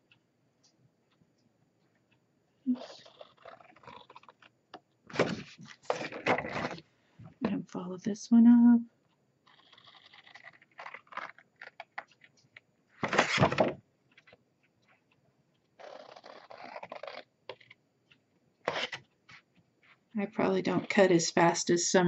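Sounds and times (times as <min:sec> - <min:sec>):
paper scraping: 0:18.7 - 0:19.0.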